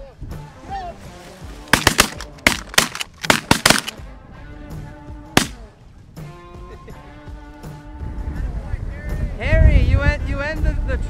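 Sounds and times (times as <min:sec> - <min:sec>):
shotgun blasts: 0:01.7 - 0:04.0, 0:05.4 - 0:05.7.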